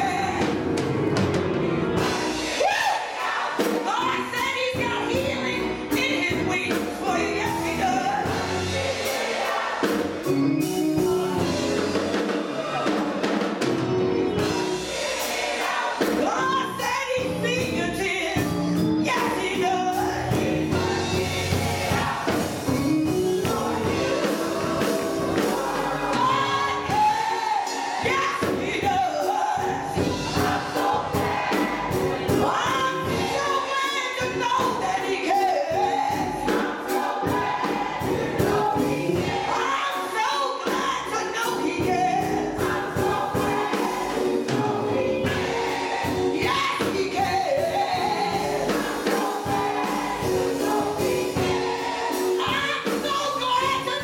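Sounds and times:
gospel choir singing: 0.0 - 54.0
woman singing into a microphone: 32.4 - 36.6, 39.5 - 43.5, 46.4 - 49.6, 52.4 - 54.0.

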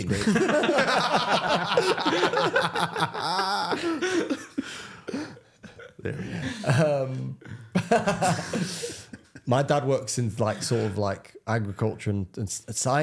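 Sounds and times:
man laughing loudly: 0.1 - 6.8, 7.8 - 9.4.

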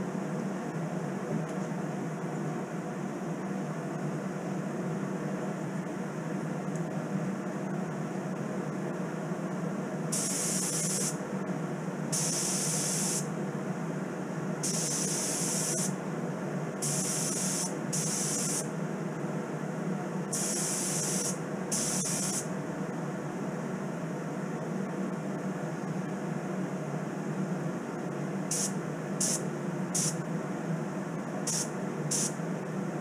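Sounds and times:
spray gun hissing: 10.1 - 11.2, 12.1 - 13.3, 14.6 - 15.9, 16.8 - 18.7, 20.3 - 22.4, 28.5 - 29.4, 30.0 - 30.2, 31.5 - 32.4.

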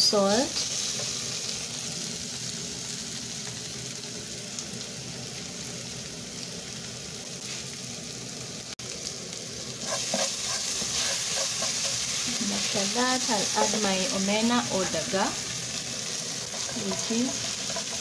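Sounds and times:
vegetables sizzling in oil: 0.0 - 18.0
wooden spoon scraping a pan: 9.8 - 12.8, 14.6 - 18.0.

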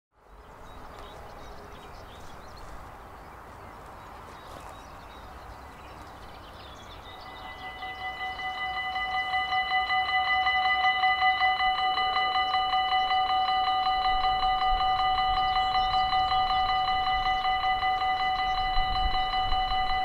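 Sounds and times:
faint bird chirps: 0.3 - 9.3
level crossing warning bell: 6.2 - 20.0.

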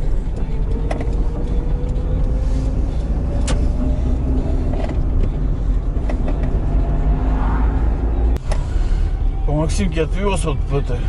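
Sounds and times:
car engine and road rumble: 0.0 - 11.0
faint rising whine: 1.9 - 9.8.

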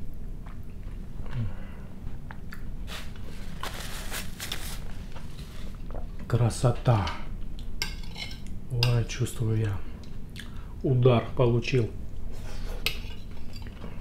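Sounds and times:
person chewing tomato: 0.3 - 3.3, 10.0 - 10.6.

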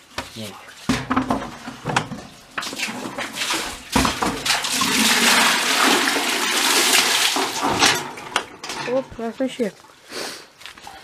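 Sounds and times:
water gushing: 0.4 - 8.8
knocks and clatter: 0.9 - 5.5, 7.4 - 9.4.

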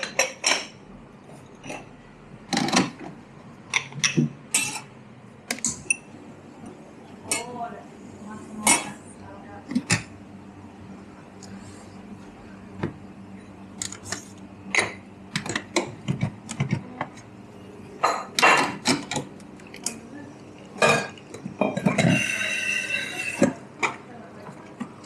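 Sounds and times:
cups and saucers clinking: 18.0 - 20.0, 20.6 - 24.0.

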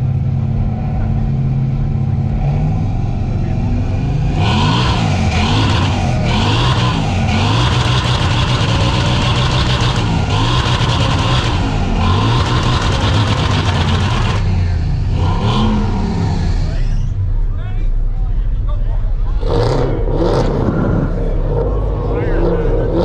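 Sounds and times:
car engine revving: 0.0 - 23.0
exhaust crackling rasp: 4.3 - 17.2.

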